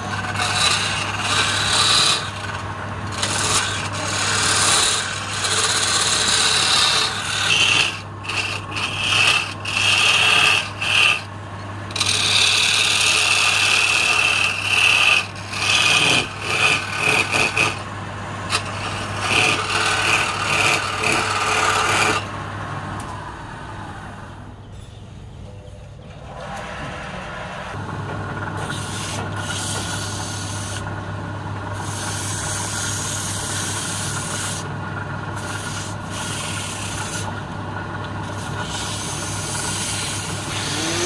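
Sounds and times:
chisel scraping wood on lathe: 0:00.0 - 0:22.3, 0:28.6 - 0:31.0, 0:31.8 - 0:41.0
lathe humming: 0:00.0 - 0:24.5, 0:26.2 - 0:41.0.

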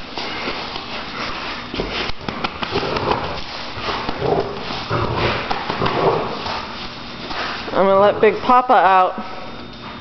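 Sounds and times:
dog claws scrabbling on concrete: 0:00.2 - 0:07.7
dog biting plastic ball: 0:01.8 - 0:06.7
dog growling: 0:02.7 - 0:06.5.

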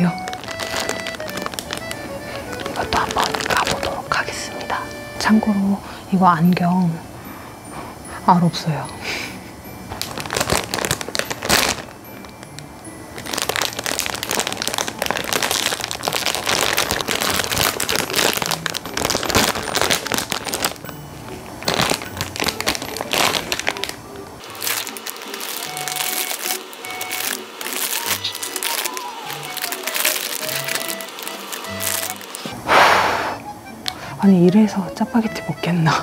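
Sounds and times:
plastic wrapper crinkling: 0:00.0 - 0:05.2, 0:09.9 - 0:32.5
light background music: 0:00.0 - 0:36.0.

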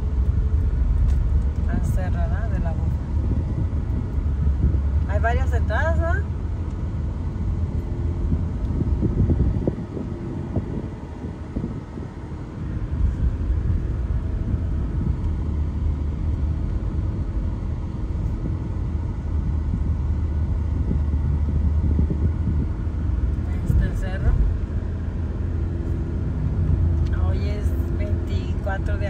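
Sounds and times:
car road rumble: 0:00.0 - 0:29.0.

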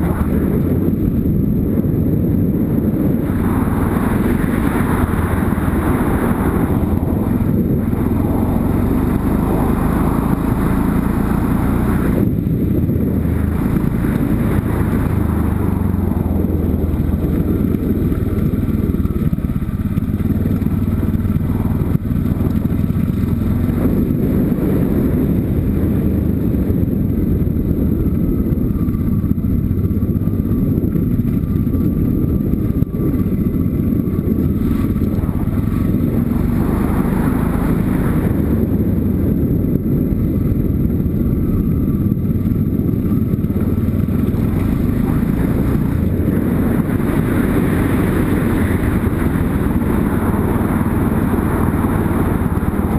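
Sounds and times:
motorcycle engine running: 0:00.0 - 0:52.9
tyres on gravel road noise: 0:00.0 - 0:52.9
wind rush: 0:00.0 - 0:52.9.

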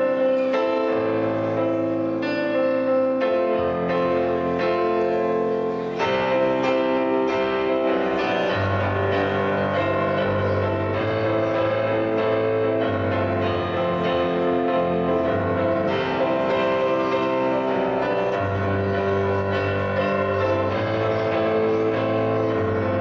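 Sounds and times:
electronic keyboard piano chords: 0:00.0 - 0:23.0.

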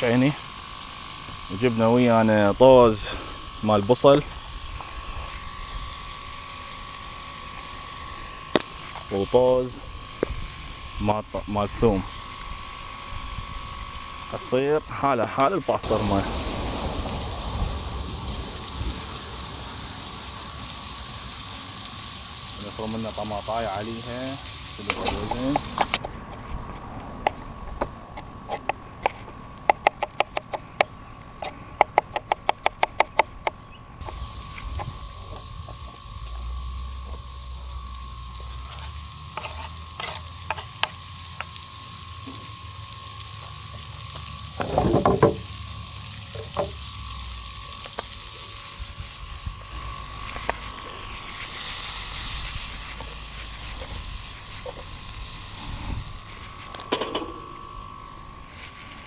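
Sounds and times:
meat sizzling in a frying pan: 0:15.8 - 0:26.0, 0:34.0 - 0:56.3.

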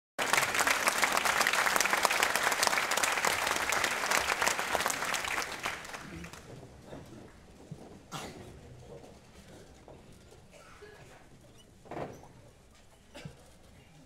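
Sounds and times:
audience applauding: 0:00.2 - 0:06.7.

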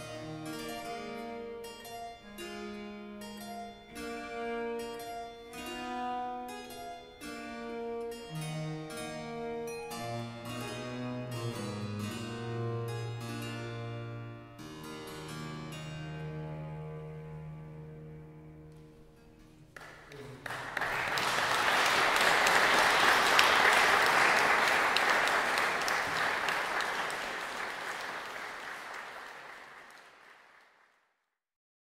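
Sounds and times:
harpsichord and cello chord: 0:00.0 - 0:19.4
audience applause: 0:19.8 - 0:31.0.

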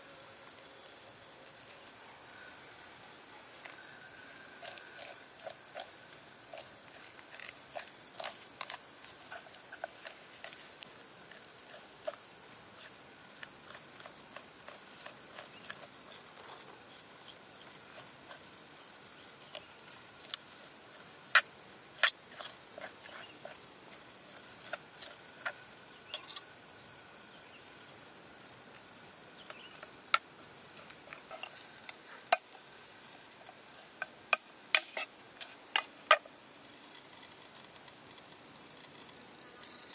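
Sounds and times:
high insect drone: 0:00.0 - 0:39.9
spoon scraping fish flesh: 0:03.7 - 0:26.4.

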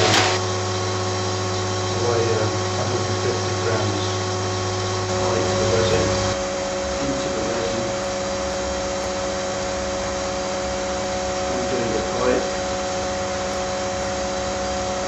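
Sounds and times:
vacuum pump humming: 0:00.0 - 0:15.0.

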